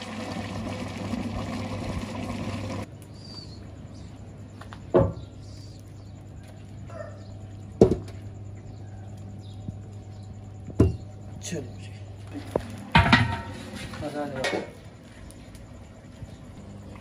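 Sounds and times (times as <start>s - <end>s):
rice bubbling in water: 0.0s - 2.9s.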